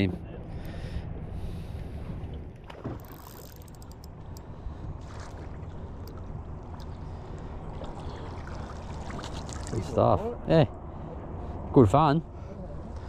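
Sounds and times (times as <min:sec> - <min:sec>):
steady low rumble: 0:03.6 - 0:13.0
fish splashing at water surface: 0:07.8 - 0:09.8.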